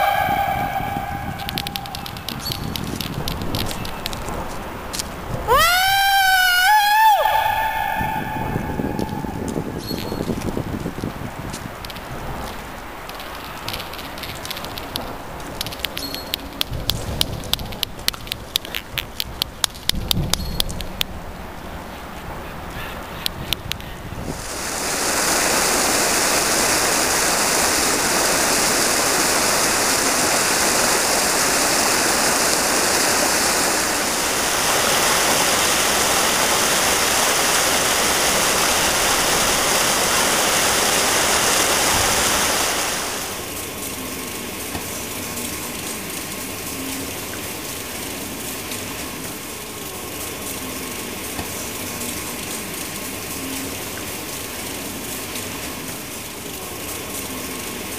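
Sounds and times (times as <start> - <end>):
faint held tone: 0.0 - 2.8
rushing water churning: 0.0 - 19.2, 24.0 - 57.9.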